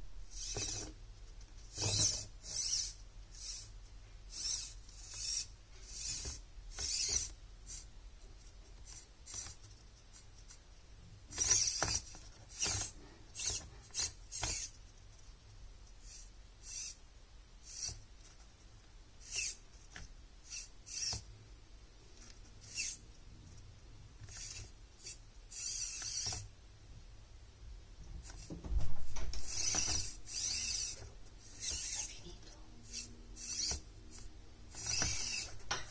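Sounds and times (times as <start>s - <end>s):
tiny motor whirring in bursts: 0.3s - 1.0s, 1.6s - 7.9s, 8.8s - 9.7s, 11.2s - 14.8s, 16.0s - 17.0s, 17.6s - 18.1s, 19.2s - 21.3s, 22.2s - 23.1s, 24.2s - 26.5s, 28.2s - 28.6s, 29.2s - 35.9s.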